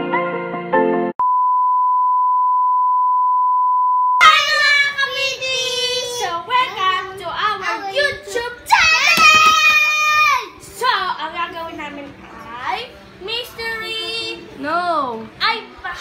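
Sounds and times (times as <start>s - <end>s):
girls singing and shouting: 4.2s - 10.9s.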